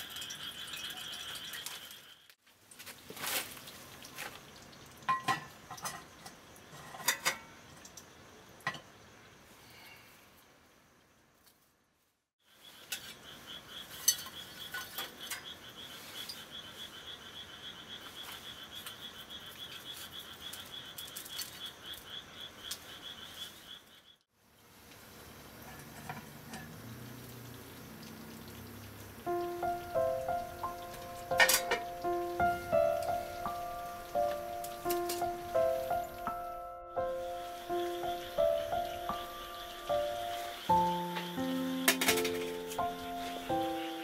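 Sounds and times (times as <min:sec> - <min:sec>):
charcoal embers clattering on metal: 0:02.8 - 0:08.0, 0:08.6 - 0:09.0, 0:13.9 - 0:15.6, 0:25.5 - 0:26.9, 0:30.6 - 0:36.2, 0:41.0 - 0:43.6
cast iron cookware clinking: 0:05.0 - 0:07.6, 0:08.6 - 0:08.9, 0:14.0 - 0:15.5, 0:25.6 - 0:26.8, 0:30.6 - 0:32.2, 0:34.6 - 0:35.5, 0:41.9 - 0:42.7.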